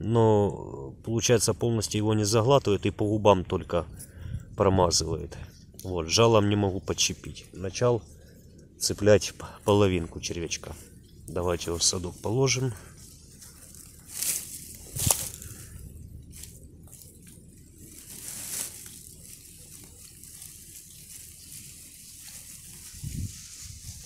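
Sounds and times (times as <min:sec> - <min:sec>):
net and reeds rustling: 0:09.2 - 0:24.0.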